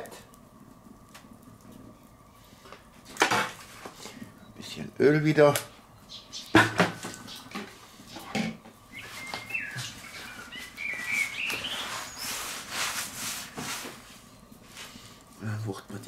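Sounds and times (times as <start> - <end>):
faint wavering chirp: 8.9 - 12.4
paper towel scraping hot plate: 9.0 - 15.0.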